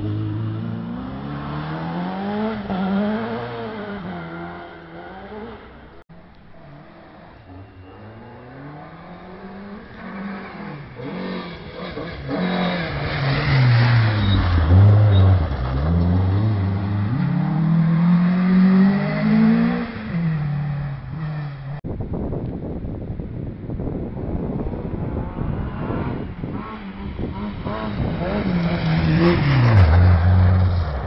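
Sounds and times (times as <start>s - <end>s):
rally car engine revving: 7.5s - 21.8s.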